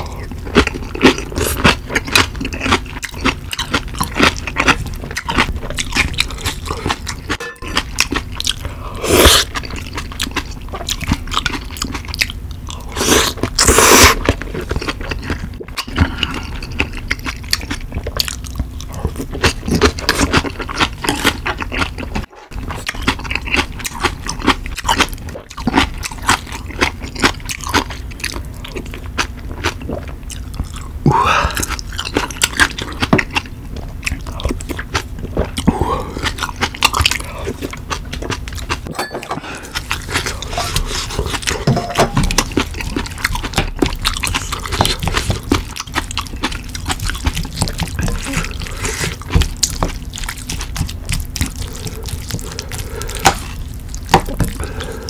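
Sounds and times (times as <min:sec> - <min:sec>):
chewing: 0:00.0 - 0:55.0
slurping noodles: 0:12.9 - 0:14.2.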